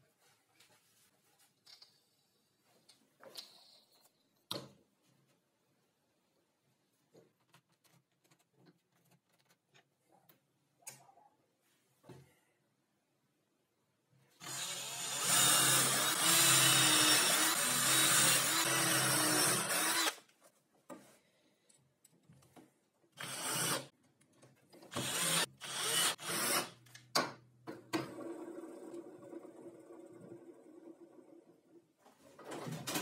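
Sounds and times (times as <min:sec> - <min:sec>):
cordless drill boring into wood: 0:14.4 - 0:20.2, 0:23.2 - 0:23.9, 0:24.9 - 0:26.8.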